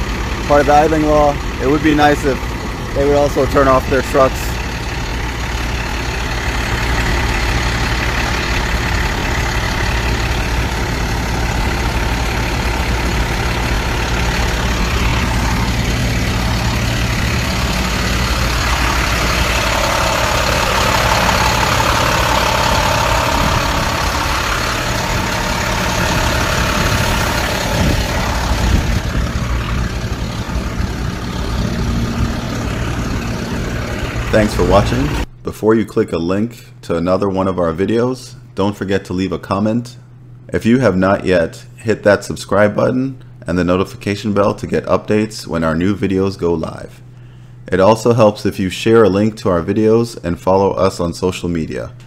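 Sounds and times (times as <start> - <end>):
garbage truck diesel engine idling: 0.0 - 35.3.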